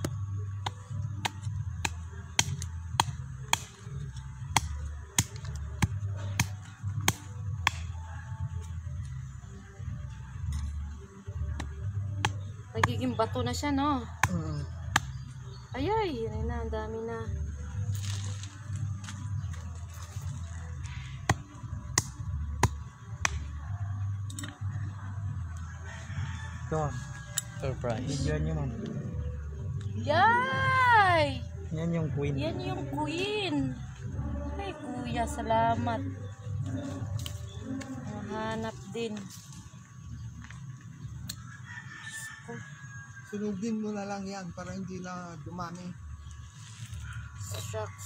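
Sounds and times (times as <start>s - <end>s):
cleaver chopping into hard earth: 0.0s - 3.9s, 4.5s - 8.0s, 14.2s - 15.3s, 21.2s - 23.5s
dry soil cracking: 0.6s - 8.0s, 17.8s - 23.5s.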